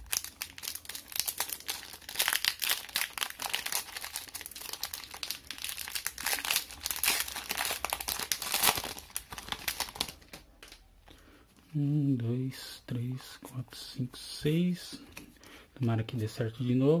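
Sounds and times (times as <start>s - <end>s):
foil wrapper crinkling and tearing: 0.0s - 10.8s.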